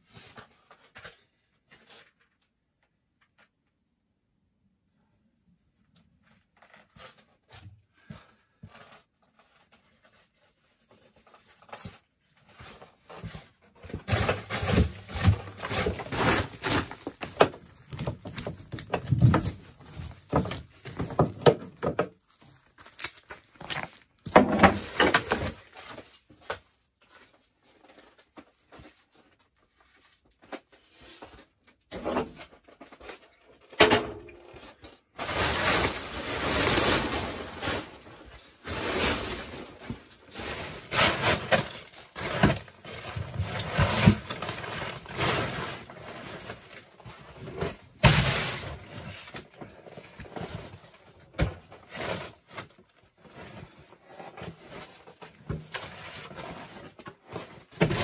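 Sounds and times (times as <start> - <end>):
plastic tarp rustling: 8.7 - 26.4, 34.5 - 58.0.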